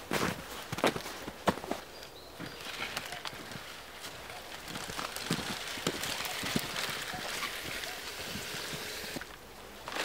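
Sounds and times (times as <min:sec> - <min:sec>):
footsteps crunching in snow: 0:00.0 - 0:09.0
dry branches rustling and snapping: 0:00.6 - 0:10.0
steady hiss: 0:07.0 - 0:09.7.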